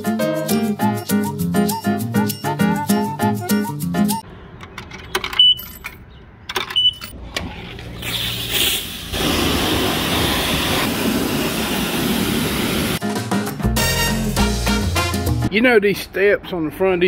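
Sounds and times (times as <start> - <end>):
coins dropping into coin box: 4.7 - 7.2
pressure washer spraying metal hull: 8.0 - 13.0.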